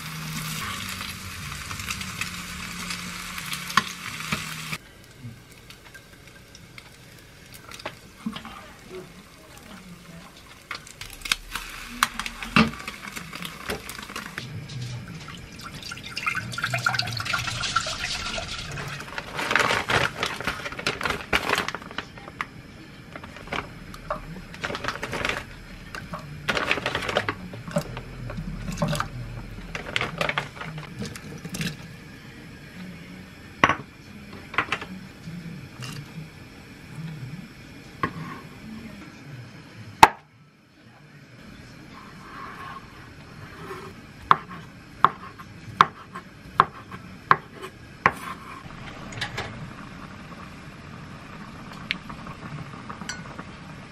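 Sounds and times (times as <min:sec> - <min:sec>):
liquid pouring into saucepan: 0:12.0 - 0:19.4
pots and utensils clinking: 0:53.0 - 0:53.4.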